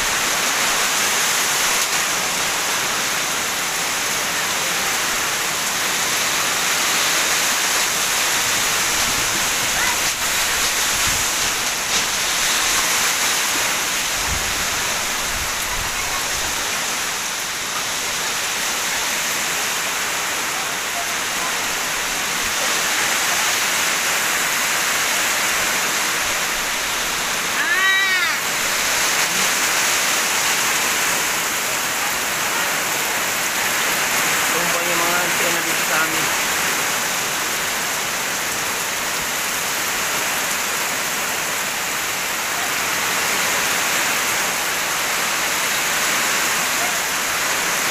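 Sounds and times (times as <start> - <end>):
heavy rain: 0.0 - 47.9
gusting wind: 5.2 - 20.0
rising and falling cry: 27.6 - 28.6.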